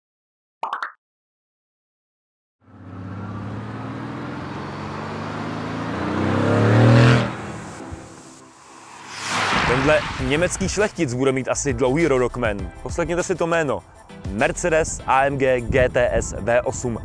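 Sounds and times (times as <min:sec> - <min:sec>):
car engine accelerating: 0:02.6 - 0:10.9
short sound effect: 0:07.7 - 0:11.1.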